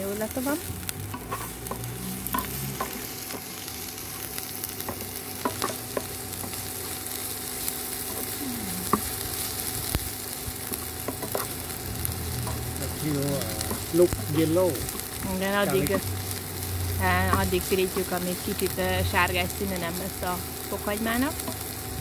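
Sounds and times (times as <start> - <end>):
garlic sizzling in hot oil: 0.0 - 22.0
spatula scraping a pan: 1.1 - 3.5.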